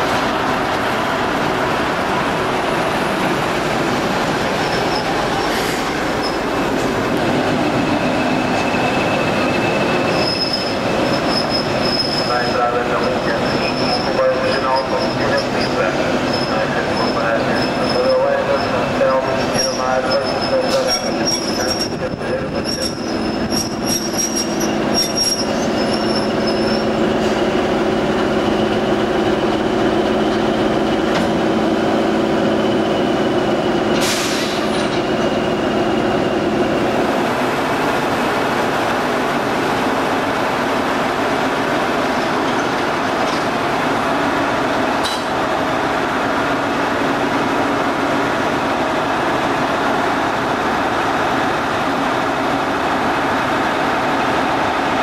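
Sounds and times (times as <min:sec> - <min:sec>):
short high squeaks: 0:08.1 - 0:12.3, 0:22.7 - 0:27.0.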